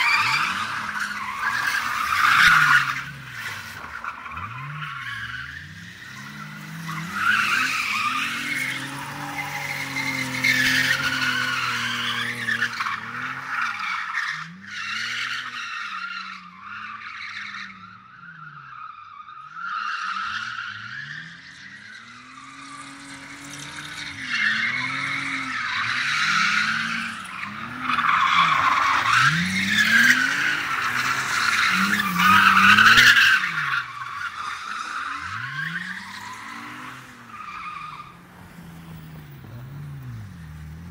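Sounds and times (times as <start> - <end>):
tyres squealing on concrete: 0.0 - 38.4
car engines revving: 0.0 - 40.9.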